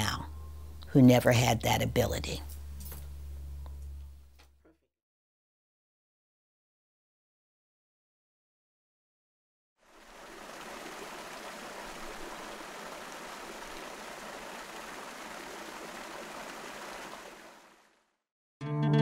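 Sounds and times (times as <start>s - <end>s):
water splashing in a fountain: 9.8s - 18.2s
guitar music: 18.6s - 19.0s.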